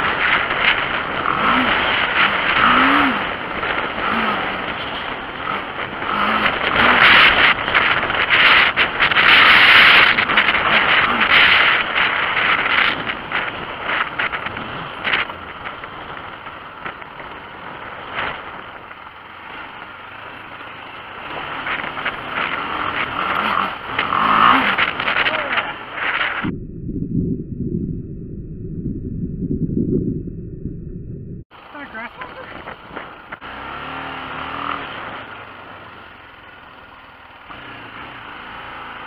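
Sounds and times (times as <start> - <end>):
wind rushing over microphone: 0.0 - 19.1, 21.2 - 31.5
motorcycle engine revving: 0.0 - 26.7, 30.5 - 39.0.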